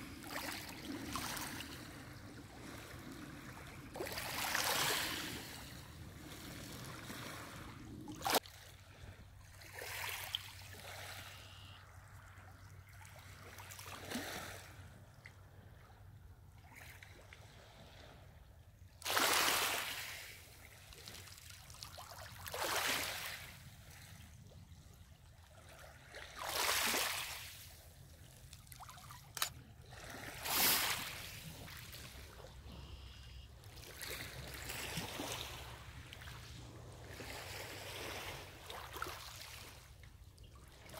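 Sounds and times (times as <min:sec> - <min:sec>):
waves washing ashore: 0:00.0 - 0:11.4, 0:19.0 - 0:21.3, 0:25.7 - 0:27.9, 0:28.8 - 0:39.9.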